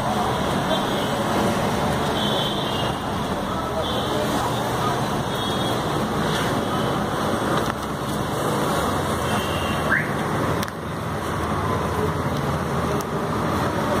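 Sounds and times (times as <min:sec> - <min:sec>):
street traffic: 0:00.0 - 0:14.0.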